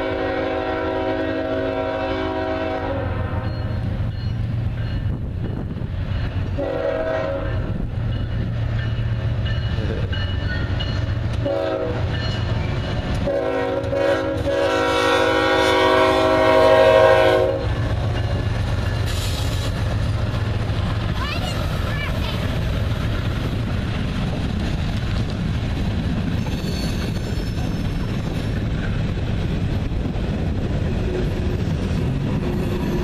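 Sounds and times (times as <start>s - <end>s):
locomotive air horn blasts: 0.0s - 3.5s, 6.6s - 7.7s, 11.4s - 12.1s, 13.2s - 17.9s
train rumbling past: 0.0s - 33.0s.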